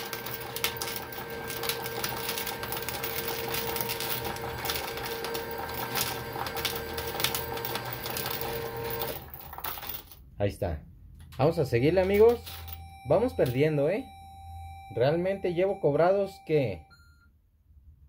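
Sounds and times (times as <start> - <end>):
coins dropping into metal tray: 0.0 - 10.2, 12.0 - 12.8
steady electronic tone: 12.7 - 17.0.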